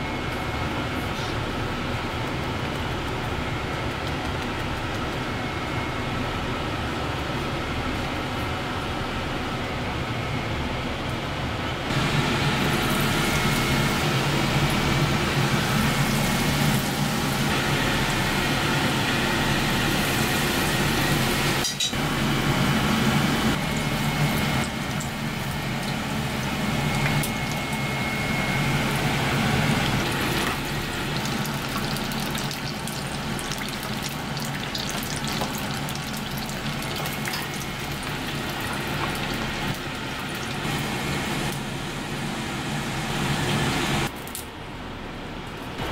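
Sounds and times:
oil sizzling and bubbling: 11.8s - 44.1s.

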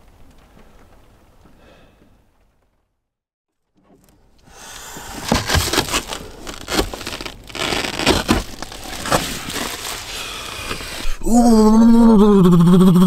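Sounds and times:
bedding rustling: 5.0s - 11.0s.

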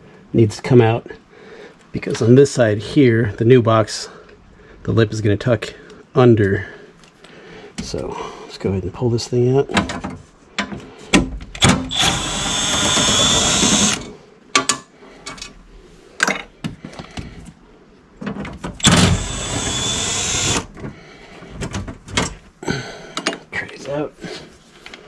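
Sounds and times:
knocks and clatter of parts: 9.7s - 12.0s, 18.2s - 19.2s, 20.7s - 22.4s
power drill running: 11.6s - 14.1s, 18.8s - 20.7s.

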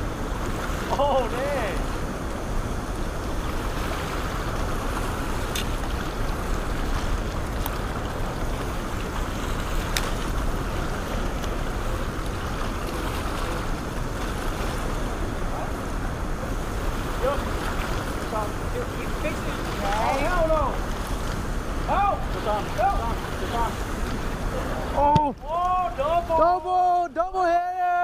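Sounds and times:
whitewater roaring over rocks: 0.0s - 28.0s.

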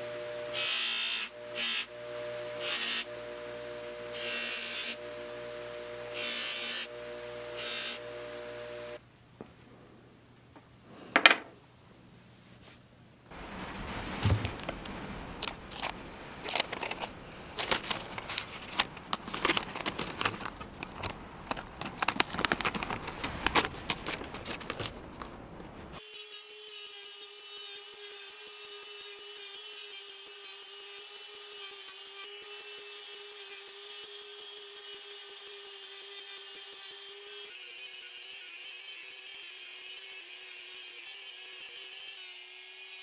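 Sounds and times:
plastic sheeting rustling: 12.4s - 26.0s.

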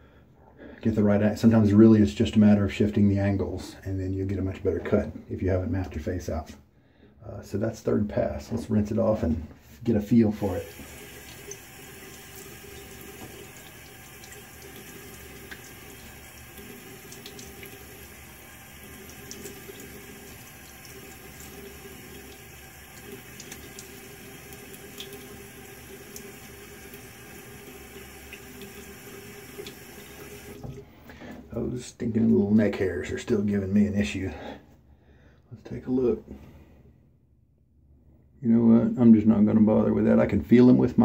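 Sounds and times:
sink tap running: 10.4s - 30.8s.

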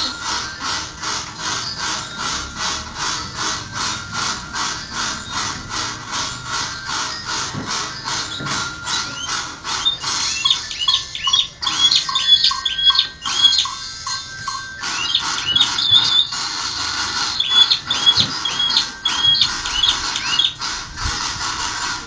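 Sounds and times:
canary singing: 6.2s - 20.6s.

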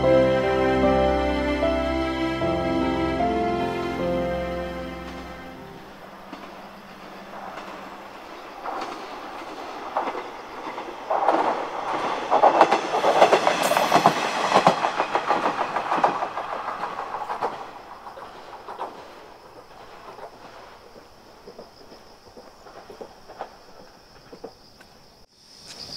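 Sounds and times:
diesel railcar running past: 0.0s - 23.9s
wheels clacking over rail joints: 4.8s - 24.9s.

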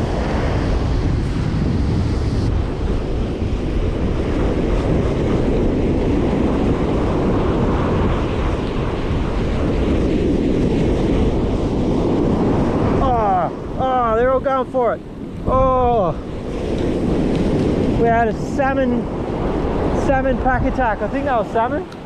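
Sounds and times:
ocean surf breaking on beach: 0.0s - 22.0s
wind buffeting microphone: 0.0s - 22.0s.

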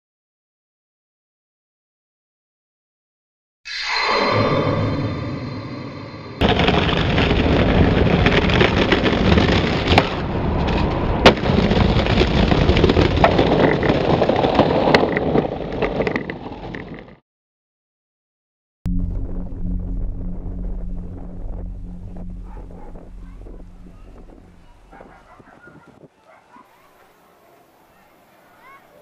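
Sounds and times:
ringing tone: 3.7s - 6.4s
explosion blast and rumble: 4.8s - 13.9s, 18.9s - 25.1s.

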